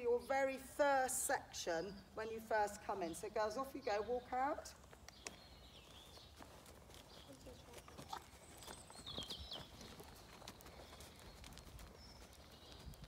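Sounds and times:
pony hooves on soft ground: 0.0s - 13.0s
person's footsteps: 4.7s - 13.0s.

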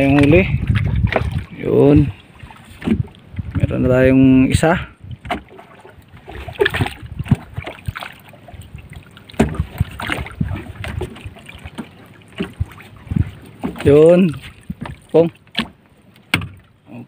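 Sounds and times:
knocks against wooden boat: 2.8s - 3.1s, 9.4s - 14.0s, 14.7s - 16.6s.

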